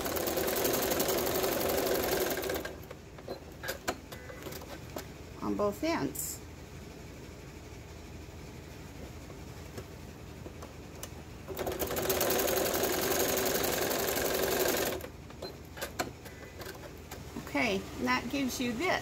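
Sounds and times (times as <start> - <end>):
sewing machine stitching: 0.0 - 2.9, 11.5 - 16.9.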